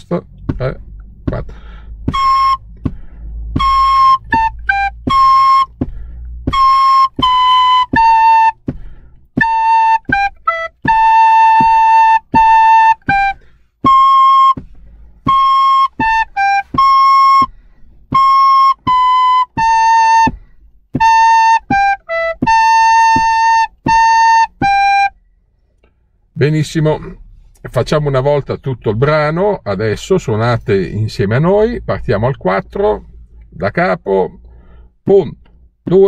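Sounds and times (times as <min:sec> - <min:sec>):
recorders playing a melody: 0:00.0 - 0:25.2.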